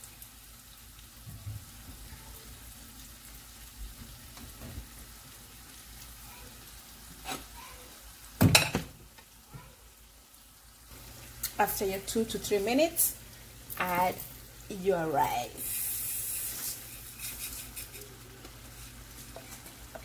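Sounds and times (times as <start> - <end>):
meat sizzling in a pot: 0.0 - 20.0
knocks on a pot: 8.4 - 9.0.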